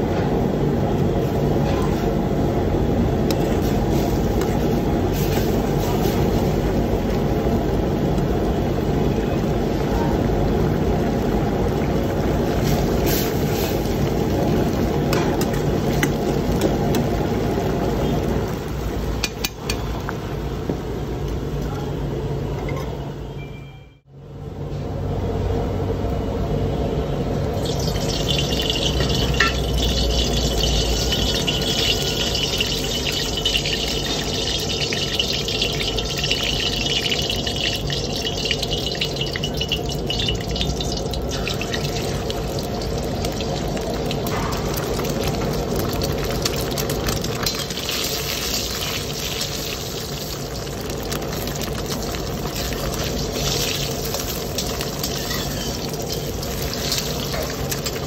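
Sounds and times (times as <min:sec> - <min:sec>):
hot oil sizzling in a wok: 0:00.0 - 0:21.6, 0:27.4 - 0:58.0
low burner rumble: 0:00.0 - 0:58.0
egg frying in oil: 0:00.4 - 0:21.5, 0:27.4 - 0:58.0
metal spatula scraping a wok: 0:54.6 - 0:57.6.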